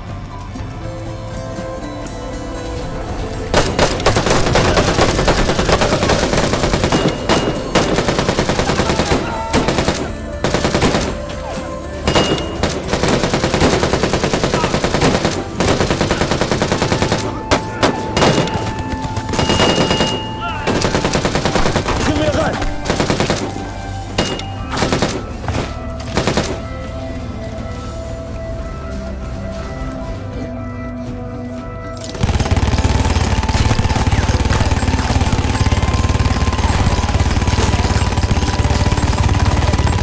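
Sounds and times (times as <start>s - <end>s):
automatic gunfire: 3.5s - 11.4s, 12.1s - 26.8s, 32.0s - 40.0s.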